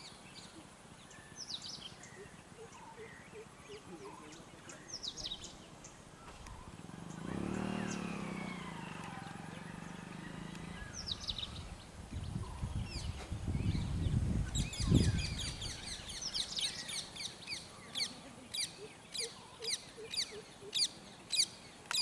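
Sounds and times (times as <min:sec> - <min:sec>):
birds chirping: 0:00.0 - 0:22.0
motor engine humming: 0:06.2 - 0:14.2.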